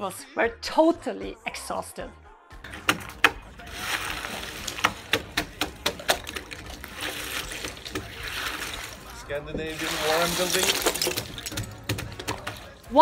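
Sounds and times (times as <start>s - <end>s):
ice cracking off wooden beams: 2.6s - 12.8s
ice crunching: 2.6s - 12.9s.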